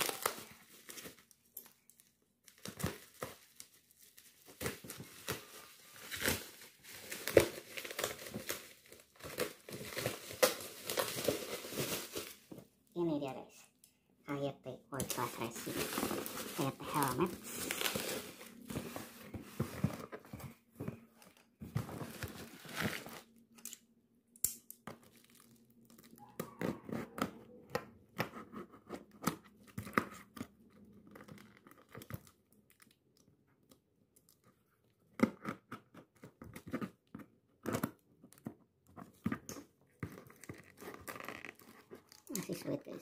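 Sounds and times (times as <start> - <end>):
bubble wrap rustling: 0.0 - 12.8, 14.9 - 23.4, 39.0 - 43.0.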